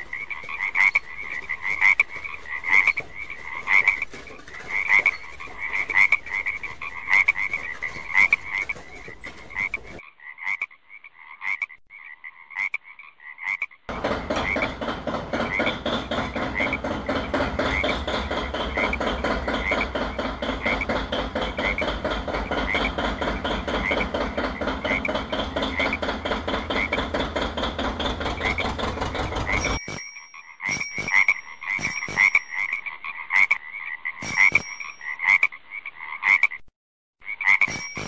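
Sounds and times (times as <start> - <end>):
frogs croaking: 0.0 - 27.5, 28.2 - 38.0
heavy vehicle engine thudding: 13.9 - 29.6
bicycle bell ringing: 29.6 - 32.7, 34.2 - 35.1, 37.7 - 38.0.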